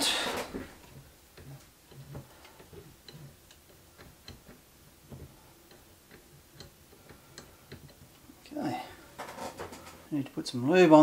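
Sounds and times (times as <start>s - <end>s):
small clicks and ticks: 0.8s - 8.3s.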